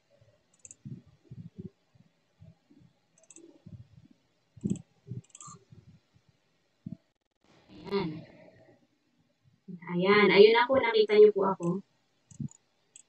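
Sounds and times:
computer mouse clicking: 0.5 - 1.0, 3.2 - 3.8, 4.6 - 5.7, 11.6 - 13.0.

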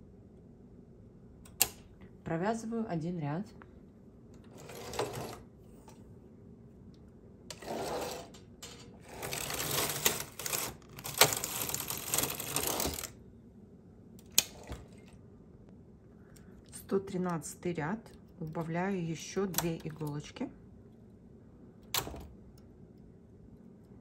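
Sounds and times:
knitting machine carriage clattering: 4.5 - 5.4, 7.5 - 13.1.

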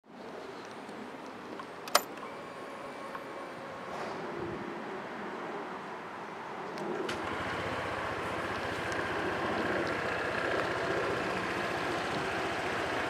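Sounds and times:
scooter engine idling: 7.1 - 13.0
scooter engine starting: 7.1 - 13.0.

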